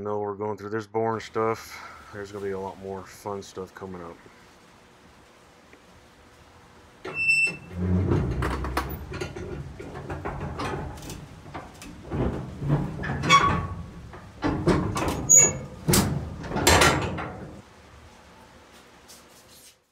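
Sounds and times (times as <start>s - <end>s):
knocks and clunks: 7.0s - 17.6s.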